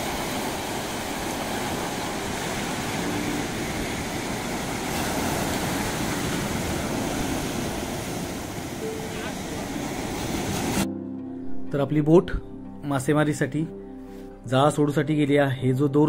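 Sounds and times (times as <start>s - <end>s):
sea surf breaking on beach: 0.0s - 10.9s.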